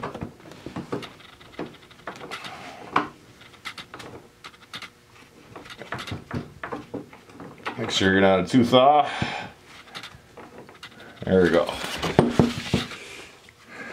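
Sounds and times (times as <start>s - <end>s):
metal parts clicking and knocking: 0.9s - 2.5s, 3.4s - 4.9s, 5.6s - 7.9s, 9.9s - 11.3s.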